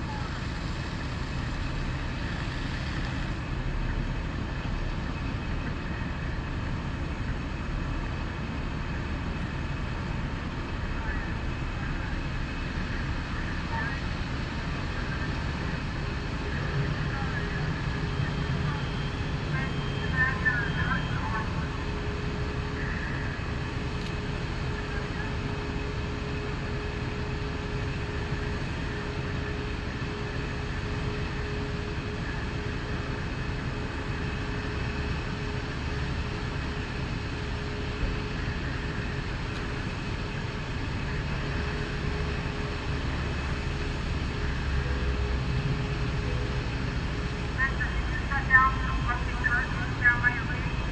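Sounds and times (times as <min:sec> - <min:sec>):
fire truck engines running: 0:00.0 - 0:50.9.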